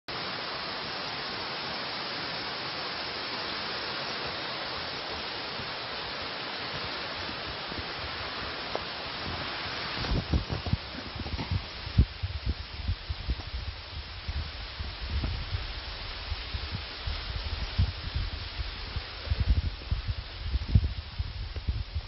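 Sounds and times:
steady rushing hiss: 0.1s - 22.0s
footfalls on leaf litter: 6.6s - 12.2s.

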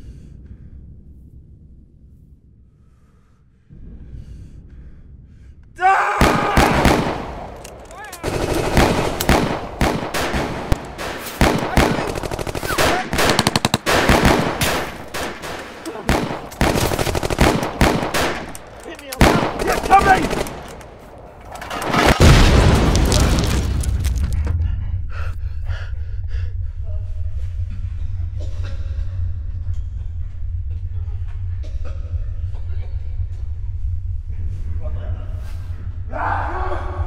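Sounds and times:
low rumble: 0.0s - 37.0s
machine-gun fire: 6.2s - 20.8s.

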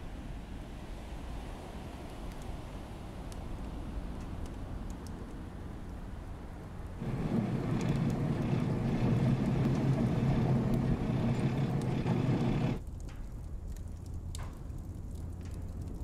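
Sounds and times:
water: 0.0s - 16.0s
wind: 0.0s - 16.0s
boat engine rumble: 1.6s - 16.0s.

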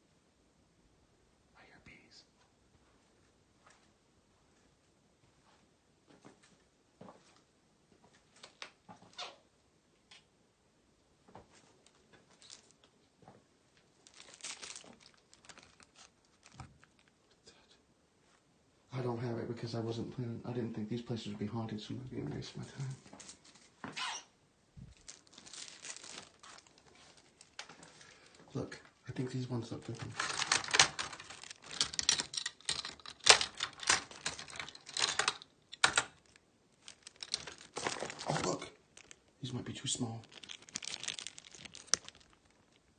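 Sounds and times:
eyeglass frames clicking and rustling: 29.9s - 39.4s, 40.2s - 42.9s.

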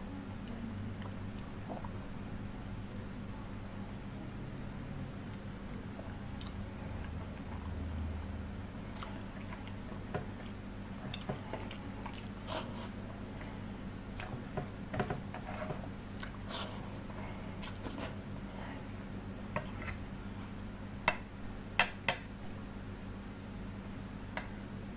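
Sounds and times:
chewing: 6.4s - 7.9s, 10.4s - 13.6s.

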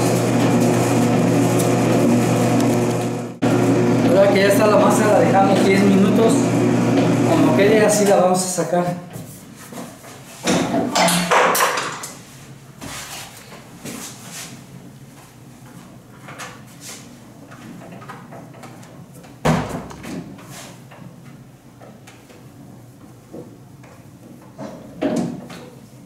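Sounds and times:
knocks and rustles on worktable: 9.1s - 12.0s, 23.3s - 25.7s.

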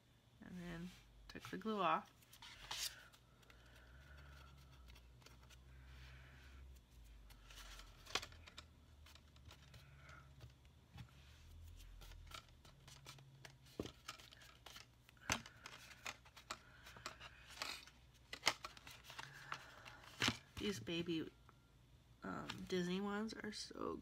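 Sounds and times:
cardstock rustling: 7.0s - 20.8s.

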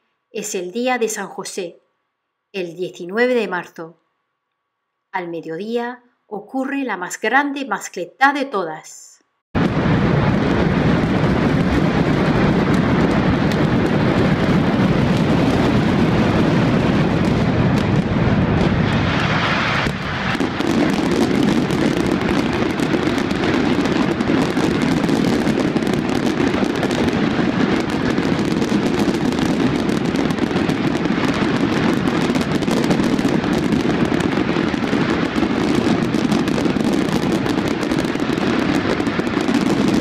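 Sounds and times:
dense firecracker bangs: 9.6s - 40.0s.

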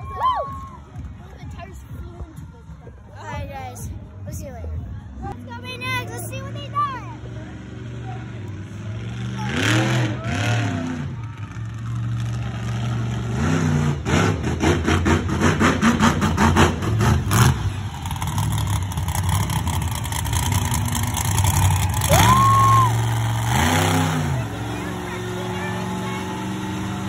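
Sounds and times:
monster truck engine revving: 7.2s - 27.0s.

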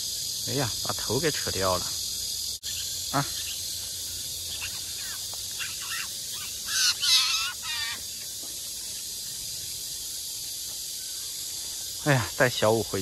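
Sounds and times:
high hiss of insects: 0.0s - 13.0s
jay harsh rasping calls: 2.7s - 8.2s
faint short bird calls: 4.5s - 8.2s.

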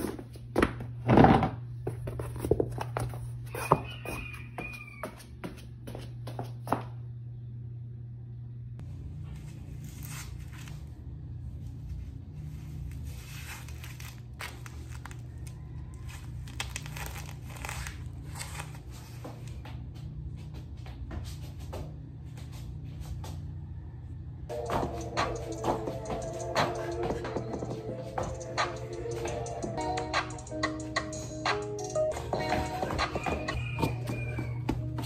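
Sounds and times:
low room hum: 0.0s - 35.0s
fabric rustling and rasping: 11.8s - 19.3s.

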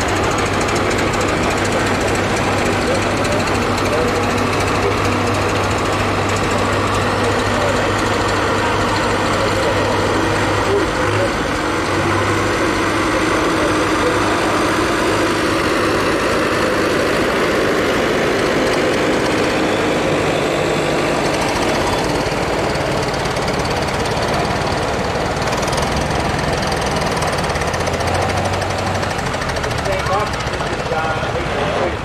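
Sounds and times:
tractor engines running: 0.0s - 32.0s.

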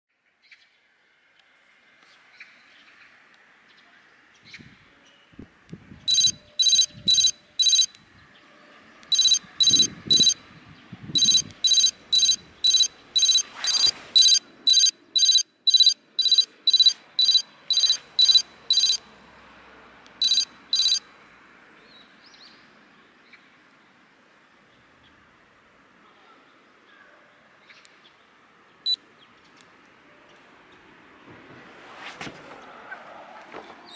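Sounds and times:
short high electronic beeps: 6.1s - 7.9s, 9.1s - 10.4s, 11.2s - 19.0s, 20.2s - 21.0s.

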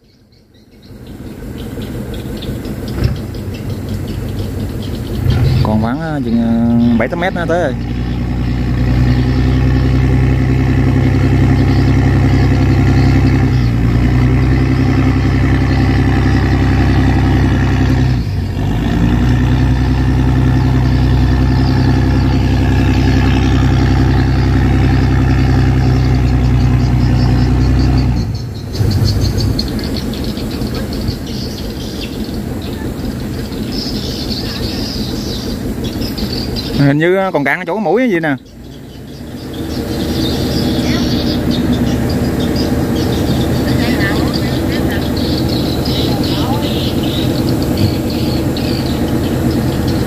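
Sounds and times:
heavy diesel engine under load: 0.0s - 50.0s
lighter rattly engine: 38.1s - 50.0s.

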